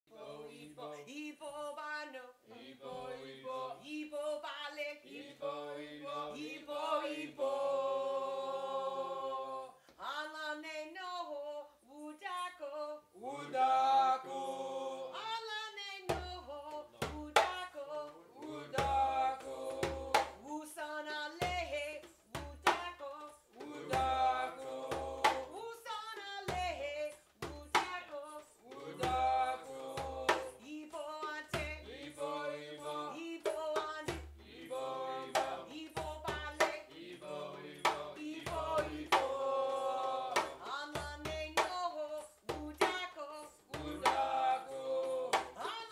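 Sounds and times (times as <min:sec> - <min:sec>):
woman singing: 0:00.1 - 0:05.1, 0:09.6 - 0:13.3, 0:15.1 - 0:24.6, 0:25.2 - 0:32.1, 0:33.0 - 0:34.3, 0:35.2 - 0:37.0, 0:38.1 - 0:39.3, 0:40.3 - 0:45.9
djembe hand drums: 0:16.1 - 0:17.7, 0:18.7 - 0:20.5, 0:21.4 - 0:32.2, 0:33.4 - 0:44.4.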